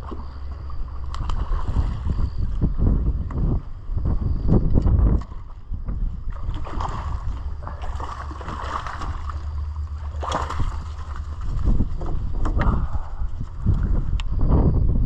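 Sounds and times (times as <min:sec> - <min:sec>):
wind rumble on microphone: 0:00.0 - 0:15.0
fish splashing at water surface: 0:06.4 - 0:11.5.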